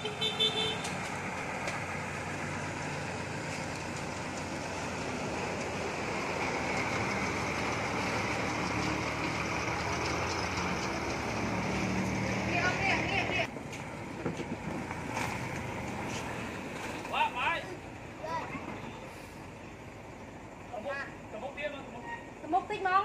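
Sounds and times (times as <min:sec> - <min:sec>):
vehicle horn: 0:00.0 - 0:01.0
dump truck diesel engine: 0:00.0 - 0:23.0.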